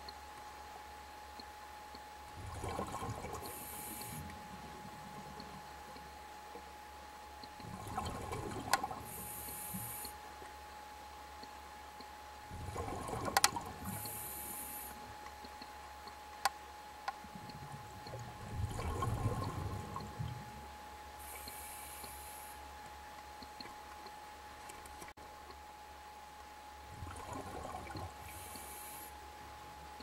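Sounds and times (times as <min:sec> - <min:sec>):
faint steady tone: 0:00.0 - 0:30.0
gurgling exhaled bubbles: 0:02.4 - 0:04.2, 0:07.6 - 0:09.2, 0:12.6 - 0:14.1, 0:17.6 - 0:20.6, 0:27.0 - 0:28.5
regulator inhalation hiss: 0:03.5 - 0:04.2, 0:09.1 - 0:10.1, 0:13.9 - 0:15.0, 0:21.2 - 0:22.6, 0:28.3 - 0:29.1.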